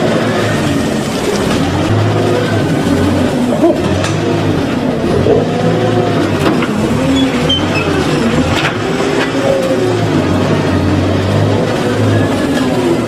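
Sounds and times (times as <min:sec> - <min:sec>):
loader engine humming: 0:00.0 - 0:13.0.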